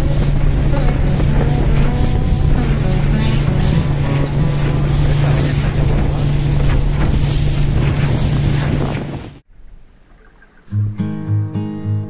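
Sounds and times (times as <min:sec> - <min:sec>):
outboard motor running: 0:00.0 - 0:09.4
water slapping hull: 0:00.0 - 0:10.7
wind buffeting microphone: 0:00.0 - 0:10.7.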